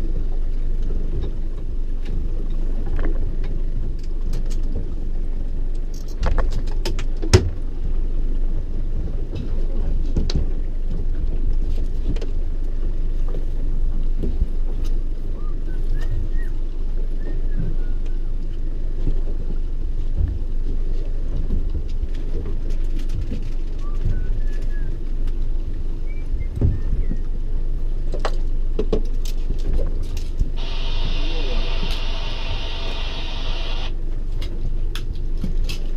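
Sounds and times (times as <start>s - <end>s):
wind and water rumble: 0.0s - 35.9s
sharp clicks: 30.6s - 33.9s.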